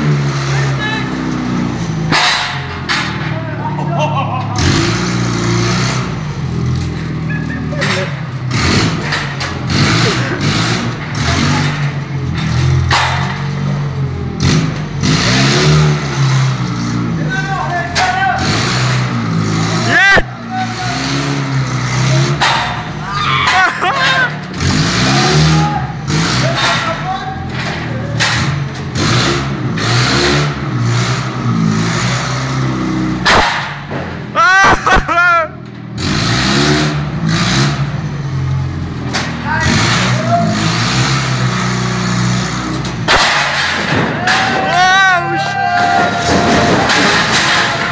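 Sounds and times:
forklift engine revving: 0.0 - 47.9
wall breaking knocks and cracks: 43.1 - 44.8, 45.8 - 47.9
blocks crashing down: 43.1 - 45.2, 45.8 - 47.9.

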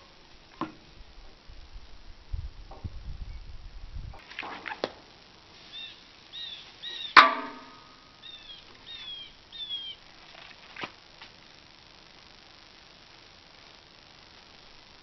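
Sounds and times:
bird chirping: 5.7 - 7.2, 8.1 - 10.1.

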